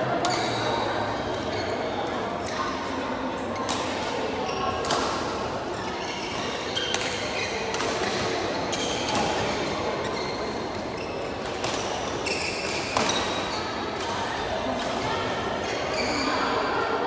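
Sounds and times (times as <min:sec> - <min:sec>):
racket hitting shuttlecock: 0:11.4 - 0:14.2.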